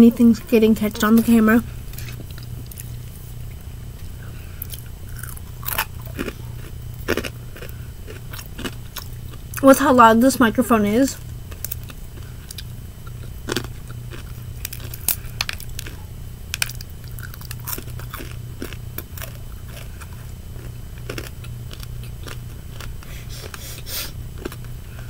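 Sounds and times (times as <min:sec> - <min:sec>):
mouth sounds: 0:00.0 - 0:02.2
steady low hum: 0:00.0 - 0:25.0
crunchy chewing: 0:00.3 - 0:09.6, 0:11.2 - 0:25.0.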